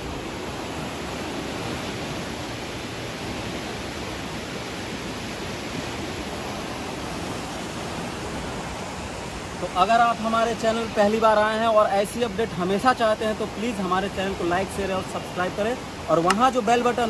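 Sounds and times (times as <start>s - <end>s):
flooded river roaring: 0.0s - 17.0s.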